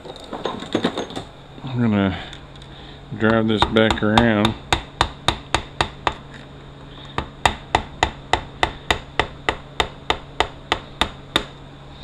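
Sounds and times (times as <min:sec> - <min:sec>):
hammer tapping on metal: 0:03.2 - 0:06.2, 0:07.2 - 0:11.6.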